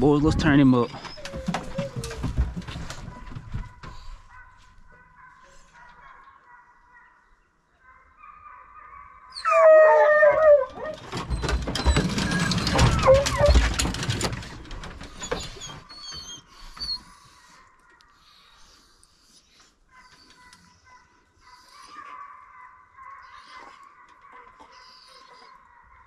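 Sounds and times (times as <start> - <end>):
metal rattling and knocking: 0.3 - 3.9, 10.7 - 16.1
dog howling and whining: 0.9 - 2.4, 8.4 - 14.3, 15.2 - 17.2, 19.9 - 26.0.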